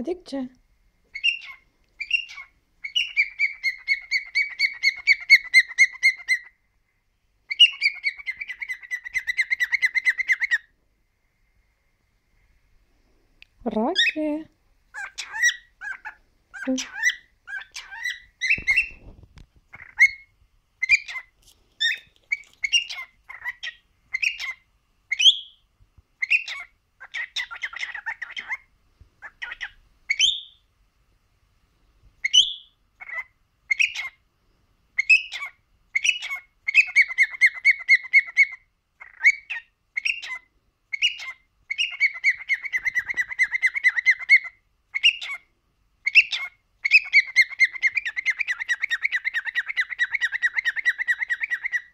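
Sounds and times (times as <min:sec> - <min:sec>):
cockatiel chattering warble: 0:01.1 - 0:06.5, 0:07.5 - 0:10.6, 0:14.9 - 0:19.1, 0:20.8 - 0:25.3, 0:26.2 - 0:28.6, 0:32.3 - 0:34.2, 0:35.0 - 0:45.4, 0:46.0 - 0:51.9
cockatiel chirping and whistling: 0:01.1 - 0:06.5, 0:07.5 - 0:10.7, 0:14.9 - 0:25.6, 0:26.2 - 0:28.6, 0:29.2 - 0:30.6, 0:32.2 - 0:34.2, 0:35.0 - 0:45.4, 0:46.0 - 0:51.9.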